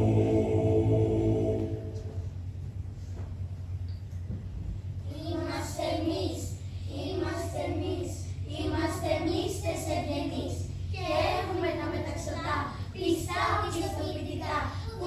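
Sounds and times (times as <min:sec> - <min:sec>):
children singing: 0:00.0 - 0:02.1
low hum: 0:00.0 - 0:15.0.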